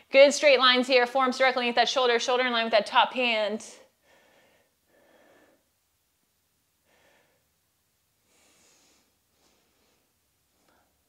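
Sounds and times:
person breathing hard: 4.0s - 5.7s, 6.8s - 7.6s, 8.2s - 10.1s.

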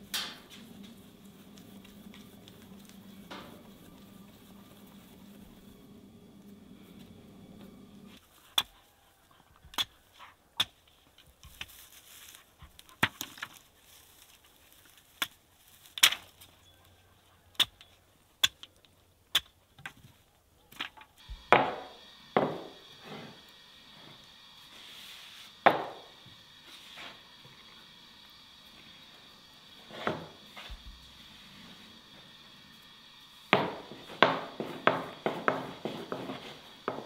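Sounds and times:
knocks on wooden board: 21.6s - 22.7s.

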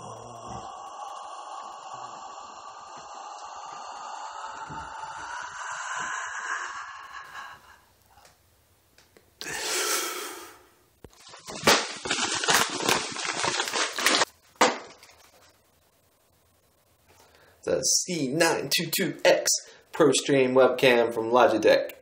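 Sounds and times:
packaging tearing: 11.1s - 15.5s
packaging crackling rustles: 11.1s - 15.6s.

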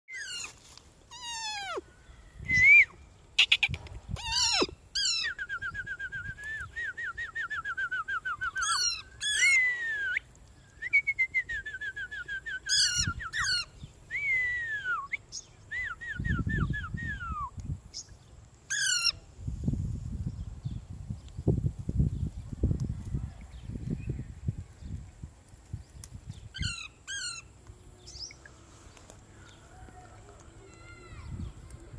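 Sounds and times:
parrot screeching and whistling: 0.1s - 1.8s, 3.4s - 5.4s, 8.6s - 9.8s, 12.7s - 13.7s, 18.7s - 19.2s, 26.6s - 27.4s.

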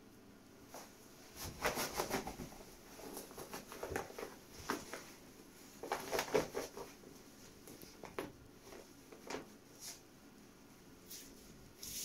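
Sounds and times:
velcro rustling and crackling: 5.8s - 7.0s.

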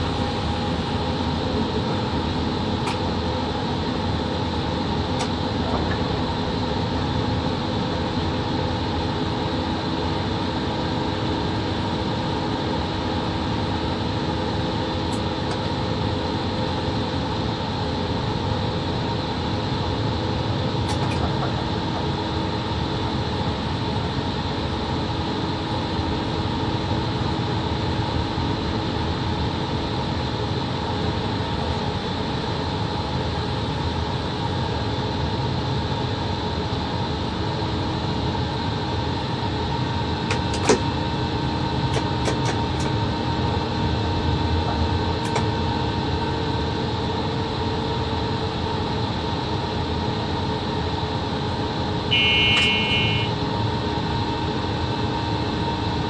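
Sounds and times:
locomotive cab hum and rumble: 0.0s - 56.0s
short electronic beep: 52.1s - 53.3s.

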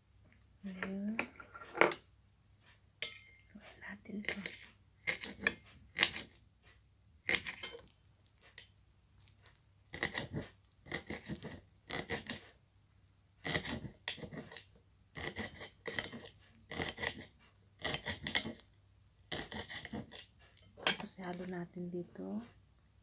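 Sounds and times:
knife cutting on ceramic plate: 4.2s - 6.4s, 7.2s - 7.9s, 9.9s - 12.5s, 13.4s - 18.7s, 19.3s - 21.1s.

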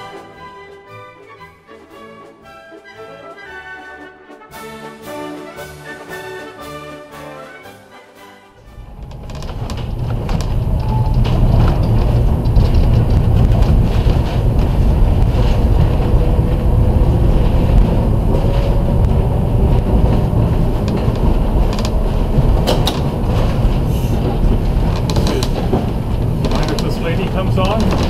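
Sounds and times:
streetcar wheels rumbling on rails: 8.6s - 28.0s.

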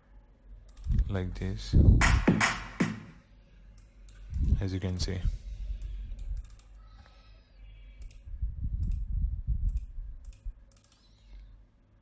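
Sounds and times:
computer mouse buttons clicking: 9.7s - 11.5s.

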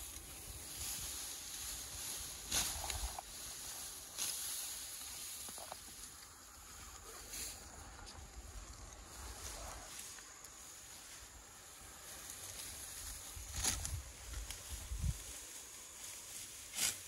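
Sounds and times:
wind rumble on microphone: 13.1s - 15.3s.

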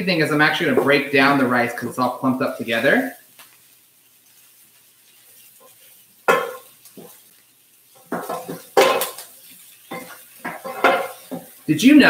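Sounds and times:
spatulas scraping in skillet: 0.0s - 12.0s.

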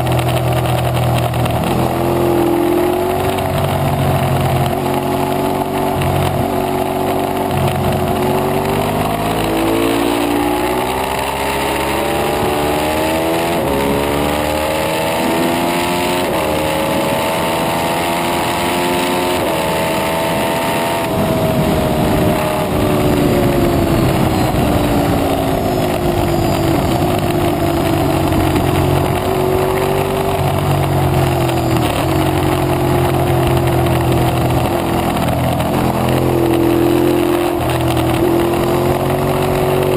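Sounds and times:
motorcycle engine accelerating: 0.0s - 39.9s
wind noise: 19.4s - 39.9s.

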